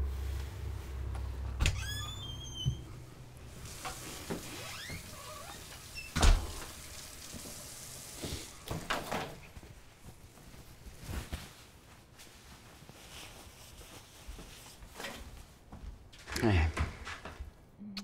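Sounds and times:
person moving about: 0.0s - 5.9s, 6.6s - 17.7s
front door shutting: 1.5s - 3.0s, 3.7s - 6.8s.

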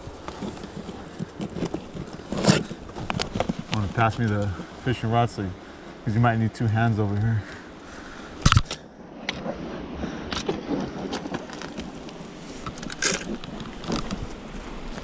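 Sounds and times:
shoes scraping on rock and dirt: 0.0s - 4.8s.

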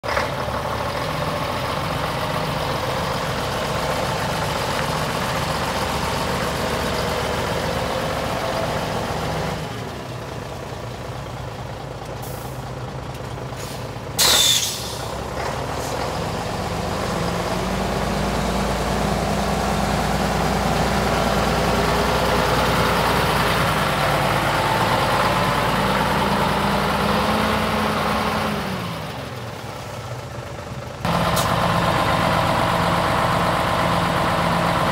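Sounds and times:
truck diesel engine idling: 0.0s - 34.9s
air hiss: 13.6s - 15.1s.

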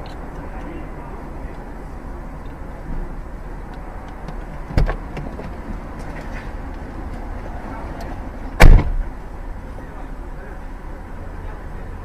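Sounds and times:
car idling: 0.0s - 12.0s
loud short thump: 8.6s - 9.0s.

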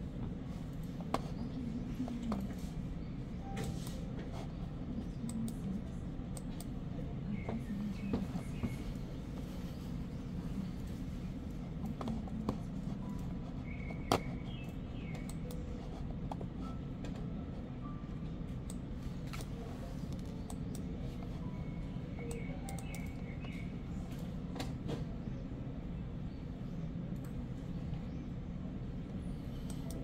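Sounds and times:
steady low hum: 0.0s - 30.0s
mouse and keyboard clicks: 11.8s - 15.6s.

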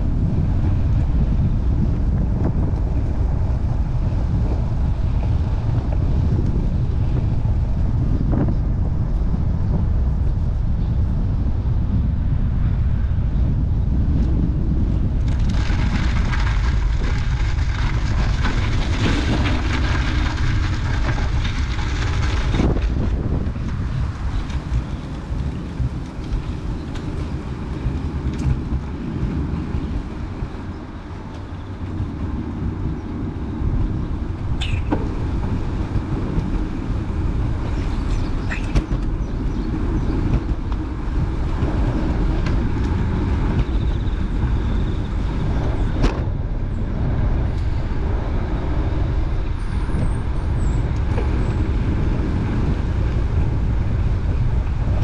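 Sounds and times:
road traffic noise: 0.0s - 55.0s
wind buffeting microphone: 0.0s - 55.0s.

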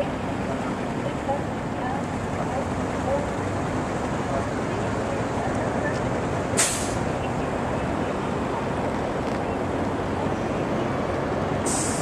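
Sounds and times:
traffic: 0.0s - 12.0s
short high hiss: 6.6s - 7.0s, 11.6s - 12.0s.

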